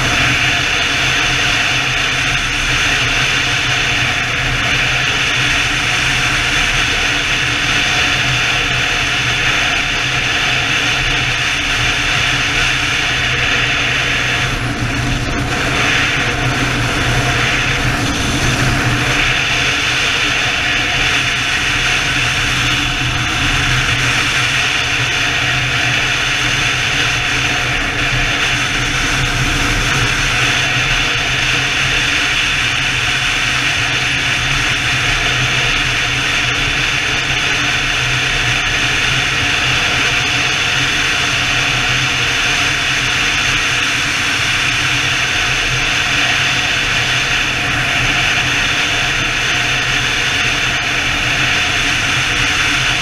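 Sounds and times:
motorcycle engine hum: 0.0 - 53.0
wind rush: 0.0 - 53.0.

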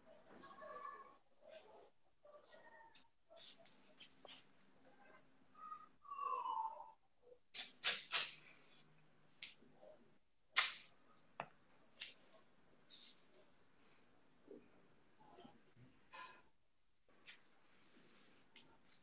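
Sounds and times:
tape being torn off roll: 7.6 - 8.4, 10.6 - 10.9.

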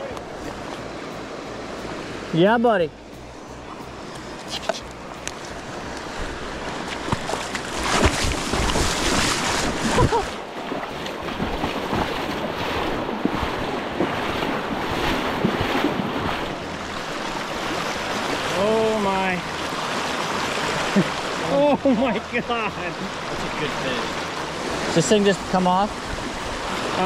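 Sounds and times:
rushing river water: 0.0 - 27.0
wind noise on microphone: 4.6 - 18.3.

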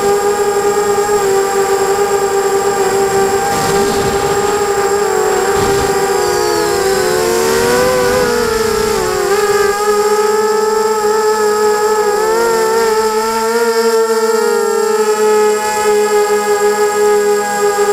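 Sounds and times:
drone motors whining: 0.0 - 17.9
rushing noise: 1.6 - 10.5.

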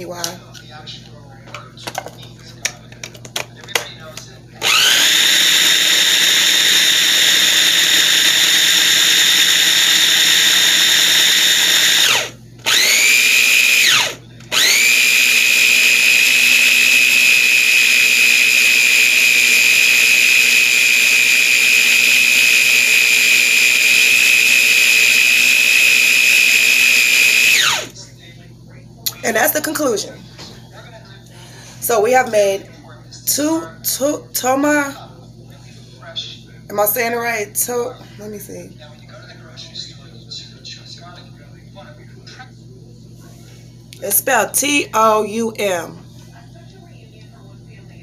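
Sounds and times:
food processor motor whining: 4.6 - 28.0.

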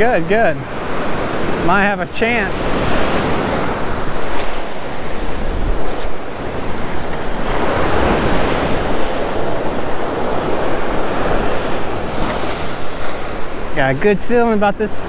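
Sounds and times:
ocean surf breaking: 0.0 - 15.0
wind rumbling on microphone: 0.0 - 15.0.

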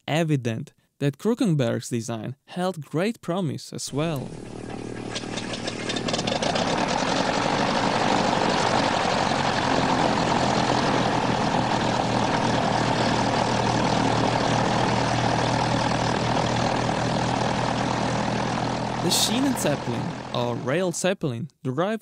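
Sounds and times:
propeller engine droning: 3.9 - 20.8.

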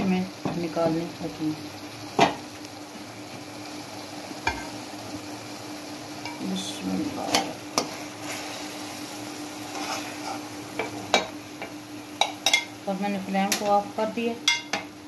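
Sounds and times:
low sizzle: 0.0 - 15.0
metal spoon scraping pan: 9.7 - 10.5.

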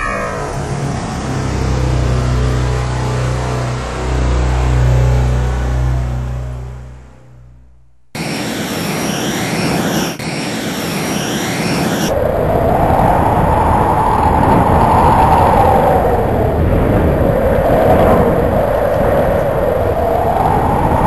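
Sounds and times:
fighter jet rushing whine: 0.0 - 6.5, 8.2 - 14.2.

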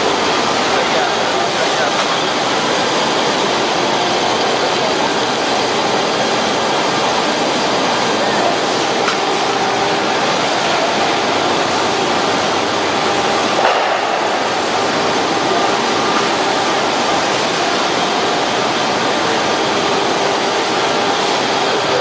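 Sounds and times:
printing machine running: 0.0 - 22.0.

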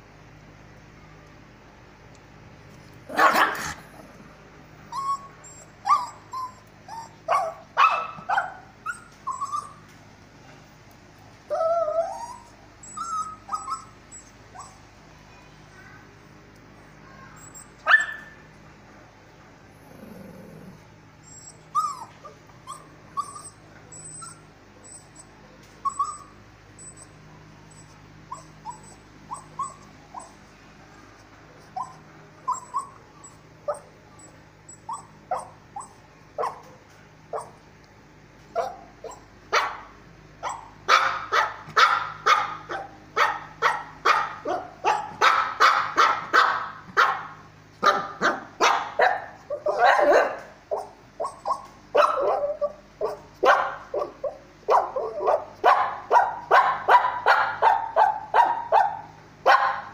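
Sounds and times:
dog barking: 3.1 - 3.8, 7.3 - 8.7, 17.8 - 18.4, 36.4 - 36.8, 38.6 - 59.9
dog whining: 3.1 - 4.3, 4.9 - 9.9, 11.5 - 14.9, 17.2 - 18.5, 19.8 - 30.5, 31.6 - 37.6, 38.5 - 39.3, 47.9 - 55.6.

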